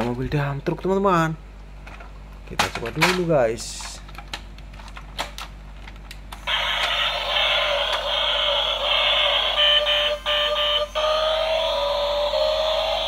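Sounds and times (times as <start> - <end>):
toy truck electronic sound effects: 6.4 - 13.0.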